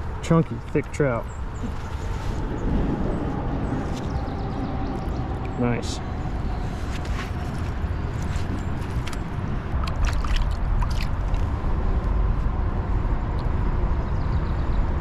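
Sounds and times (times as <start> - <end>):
low rumble: 1.2 - 15.0
creek water gurgling: 9.0 - 11.6
sharp water splashes: 9.7 - 11.5.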